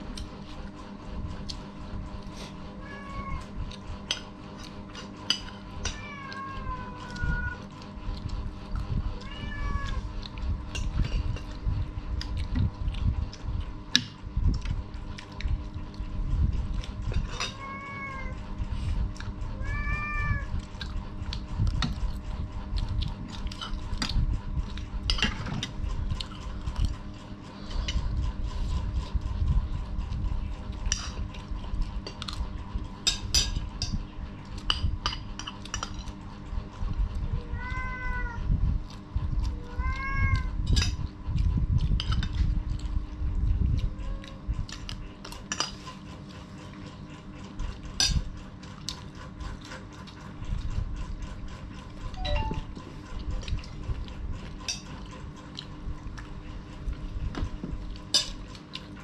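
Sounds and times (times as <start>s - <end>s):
cat meowing: 2.8s - 3.5s, 5.9s - 7.6s, 9.2s - 10.0s, 17.4s - 18.4s, 19.6s - 20.6s, 37.4s - 38.5s, 39.5s - 40.6s.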